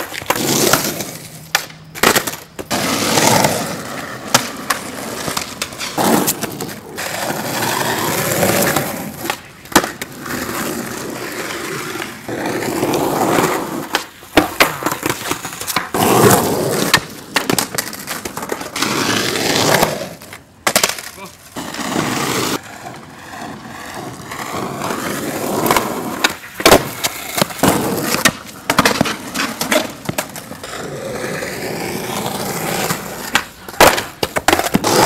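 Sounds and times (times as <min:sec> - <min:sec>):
skateboard clacking on ground: 0:00.0 - 0:35.0
skateboard wheels rolling on asphalt: 0:00.0 - 0:35.0.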